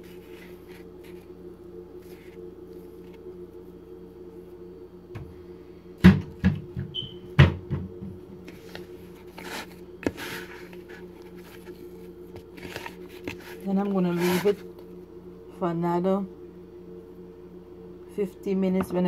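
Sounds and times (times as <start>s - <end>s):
hands handling dough: 0.0s - 3.3s, 8.4s - 14.7s
steady low hum: 0.0s - 19.0s.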